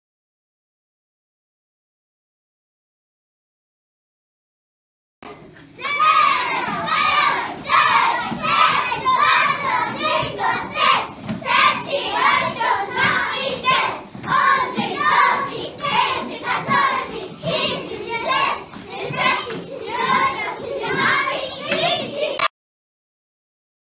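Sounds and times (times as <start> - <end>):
children chanting in unison: 5.8 - 22.5.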